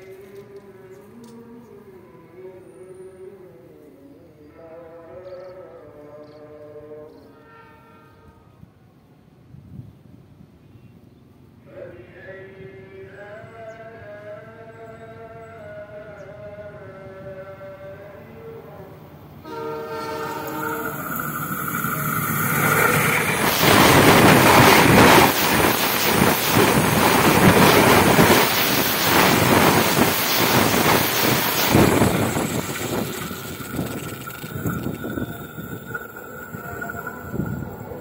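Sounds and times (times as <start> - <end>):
train horn: 7.3 - 8.8, 19.4 - 21.5
steady high tone: 19.5 - 38.0
train wheels clattering on rails: 20.3 - 37.8.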